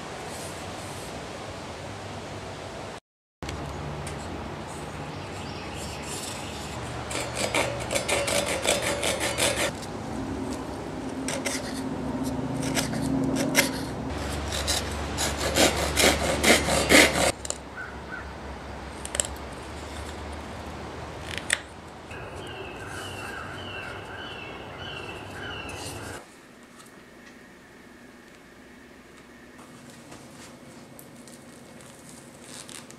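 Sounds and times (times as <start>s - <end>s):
hand saw cutting wood: 5.8s - 9.8s, 11.2s - 17.4s.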